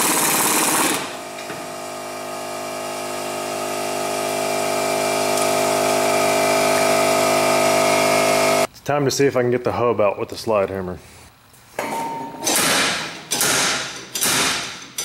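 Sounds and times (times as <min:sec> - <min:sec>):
power tool turning screw: 0:00.0 - 0:01.5
steady motor hum: 0:00.0 - 0:08.7.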